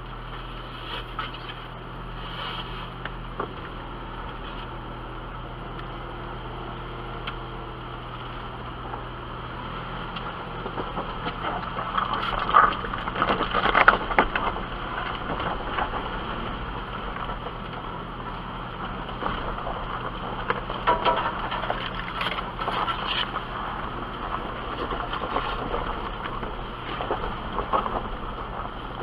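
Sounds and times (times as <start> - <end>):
engine running at crawling speed: 0.0 - 29.0
rocks knocking and rattling: 10.1 - 29.0.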